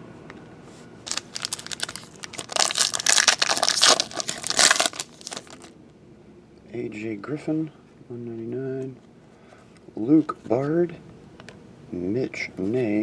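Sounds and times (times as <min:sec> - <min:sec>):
foil wrapper tearing and crinkling: 0:01.1 - 0:05.7.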